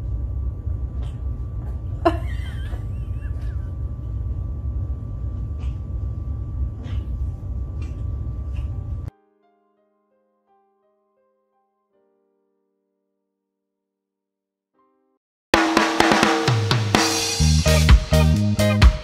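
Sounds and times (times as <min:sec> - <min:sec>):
low rumble: 0:00.0 - 0:09.1.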